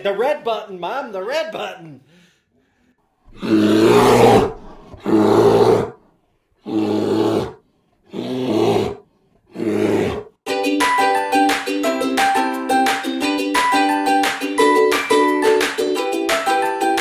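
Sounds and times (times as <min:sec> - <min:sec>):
bear roaring: 0:03.3 - 0:06.0, 0:06.6 - 0:10.4
ukulele music: 0:10.5 - 0:17.0.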